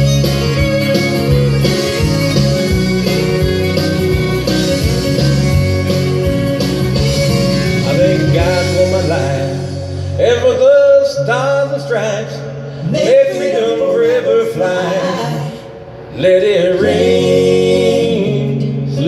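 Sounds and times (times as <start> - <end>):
country backing track with guitar: 0.0 - 14.1, 16.2 - 19.0
man singing into microphone: 7.8 - 15.6, 16.2 - 19.0.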